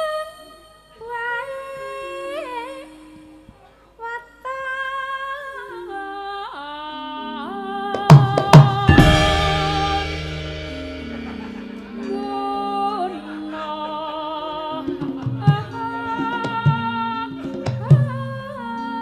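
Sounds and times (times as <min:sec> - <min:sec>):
woman singing ornamented vocal line: 0:00.0 - 0:19.0
sharp drum strokes: 0:08.1 - 0:12.8
gamelan ensemble: 0:08.1 - 0:19.0.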